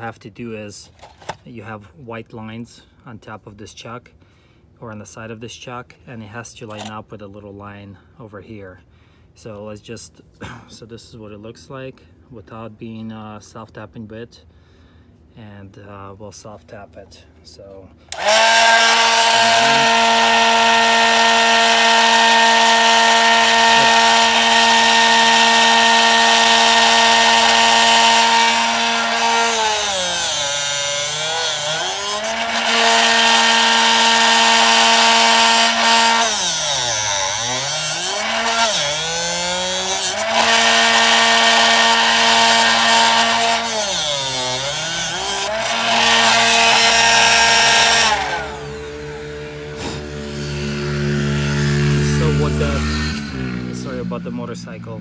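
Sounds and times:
sharpener motor hum: 18.1 - 53.4.

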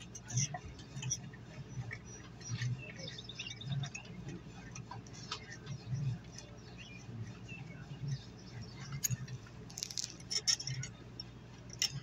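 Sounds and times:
small metal clicks and scrapes: 0.0 - 1.3, 8.6 - 12.0
birds chirping faintly: 0.0 - 11.5.

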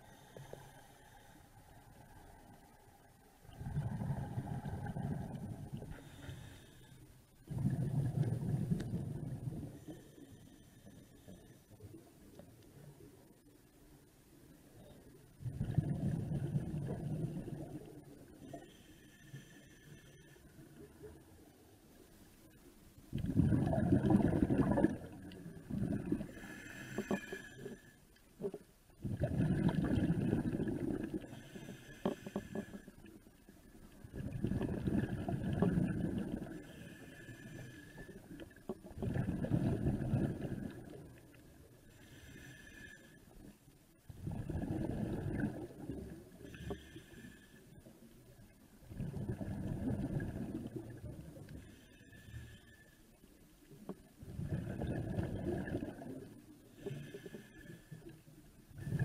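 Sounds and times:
hissing regulator inhale: 0.0 - 1.6, 5.9 - 7.9, 18.4 - 20.6, 26.2 - 28.0, 31.1 - 33.1, 36.6 - 38.5, 41.9 - 43.4, 46.4 - 47.9, 51.5 - 53.2, 56.7 - 58.2
exhaled bubbles rushing: 3.5 - 5.9, 7.5 - 9.7, 15.4 - 17.8, 23.2 - 26.4, 29.0 - 31.3, 34.1 - 36.6, 38.9 - 41.1, 44.2 - 46.2, 48.9 - 51.2, 54.2 - 56.3.

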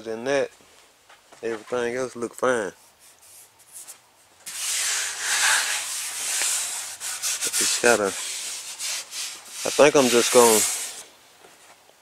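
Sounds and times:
hand rubbing fiberglass surface: 2.8 - 11.1.

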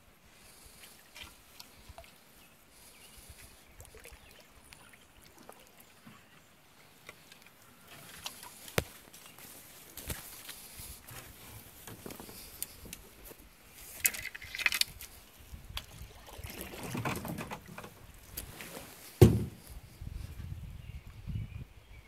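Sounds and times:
paddle swishing through water: 0.3 - 19.7
knocks on canoe hull: 19.2 - 19.6.

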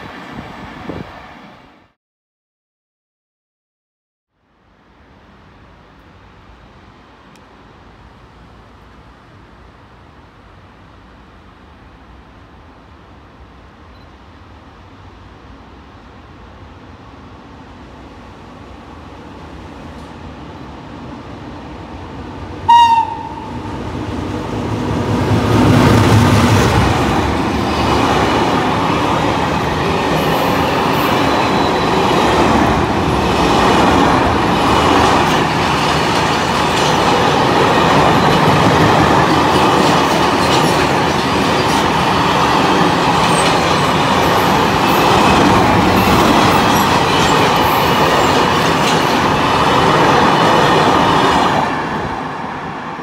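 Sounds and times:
train horn blast: 22.6 - 23.7
wagons rolling on rails: 26.8 - 51.4.

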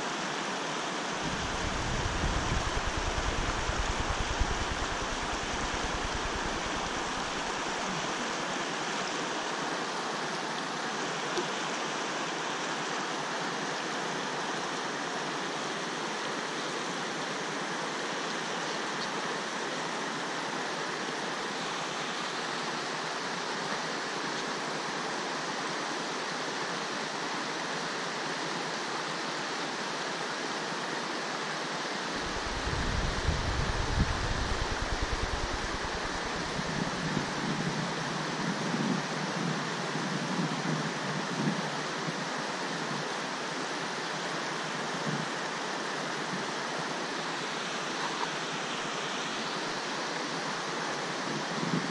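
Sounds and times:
river water over rocks: 0.0 - 51.9
low rumble: 1.3 - 7.8.

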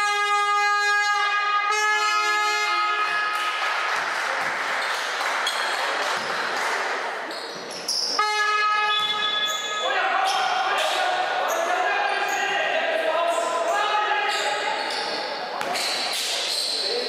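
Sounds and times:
crowd noise in a hall: 0.0 - 17.0
horn-like instrument held notes: 8.2 - 9.4.

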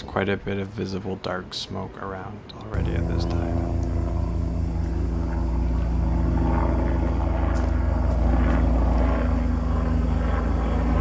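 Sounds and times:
aircraft engine drone: 2.7 - 11.0.

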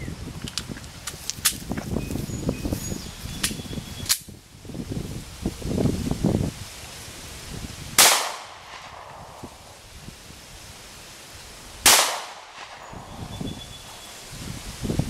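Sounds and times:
pistol shots with echo: 8.0 - 9.5, 11.8 - 13.1.

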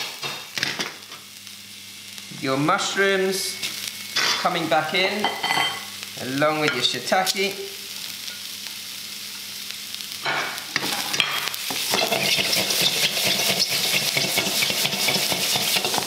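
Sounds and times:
vegetables sizzling in wok: 0.0 - 16.0
stirring scrapes against wok: 11.8 - 16.0.

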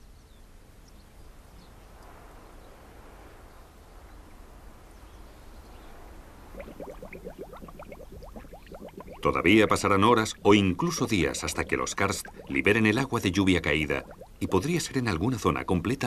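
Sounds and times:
faint outdoor hiss: 0.0 - 16.0
water trickling: 6.4 - 15.4.

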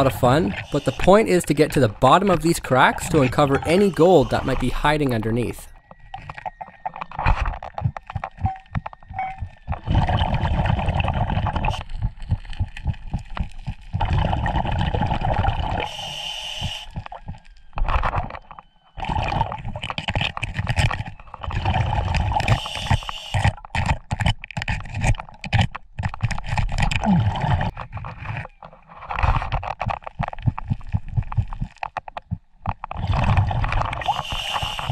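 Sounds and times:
regulator hissing: 0.0 - 5.4, 15.8 - 17.0
exhaled bubbles gurgling: 6.4 - 18.4, 19.0 - 23.6, 26.8 - 27.7.

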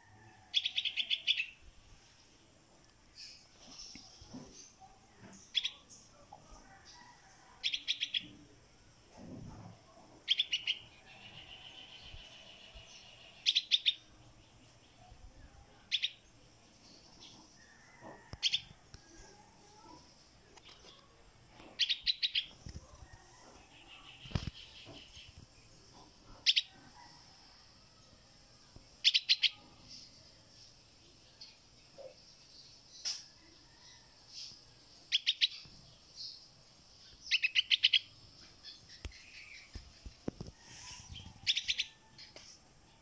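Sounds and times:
fledgling bird chirping: 0.5 - 1.7, 9.5 - 14.2, 18.2 - 23.0, 23.6 - 26.8, 29.0 - 30.0, 37.0 - 42.4.

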